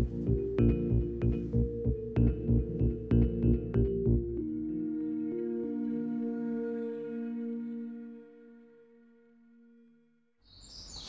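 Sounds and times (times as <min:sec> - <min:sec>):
ringing ambient chord: 0:00.0 - 0:10.2.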